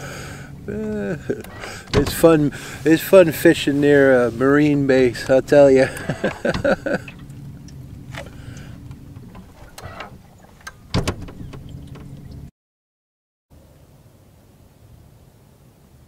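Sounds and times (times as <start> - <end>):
low steady hum: 0.0 - 12.5.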